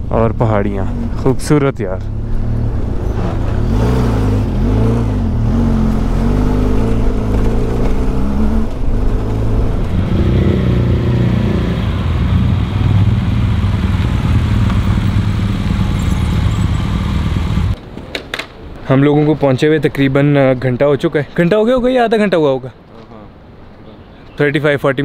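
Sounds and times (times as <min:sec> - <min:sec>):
motorcycle engine running: 0:05.1 - 0:17.8.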